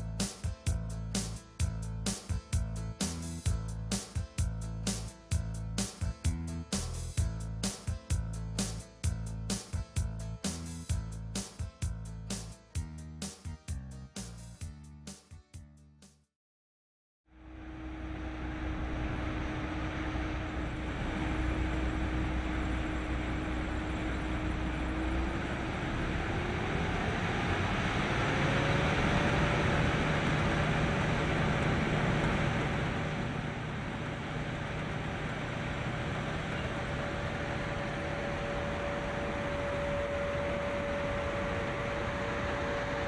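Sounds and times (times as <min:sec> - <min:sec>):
machine whine rising in pitch: 0:17.3 - 0:43.0
combine harvester drone: 0:17.4 - 0:43.0.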